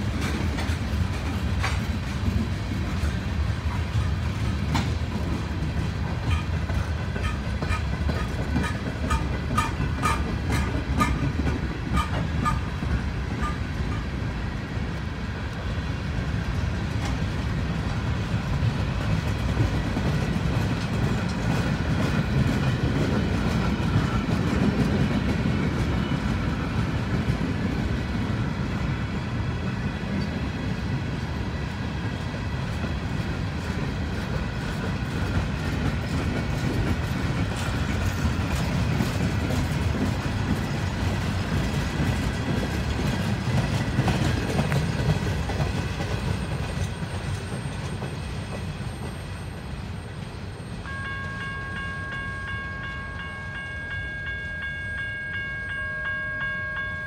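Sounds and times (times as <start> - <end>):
wheels clacking over rail joints: 0.0 - 14.2, 16.4 - 28.3, 32.1 - 49.6
freight train rolling past: 0.0 - 57.0.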